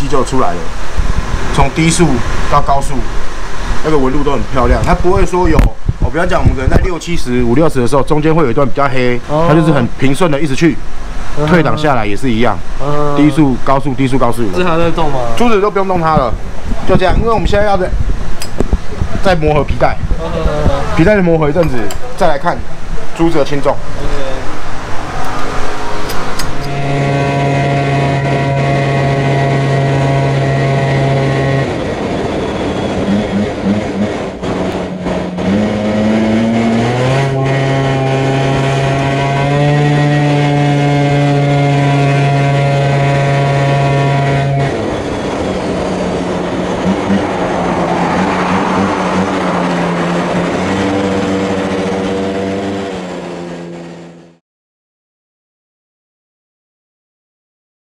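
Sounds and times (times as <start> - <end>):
scooter engine running: 33.0 - 37.2, 48.1 - 53.7.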